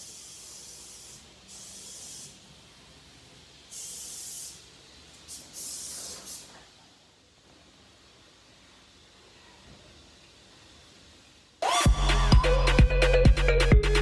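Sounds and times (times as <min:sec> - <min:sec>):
aerosol spray hissing: 0:00.0 - 0:07.0.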